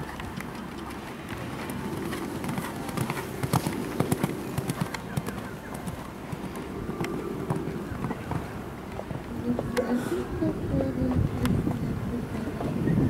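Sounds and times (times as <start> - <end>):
horse hoofbeats on sand: 0.0 - 9.7.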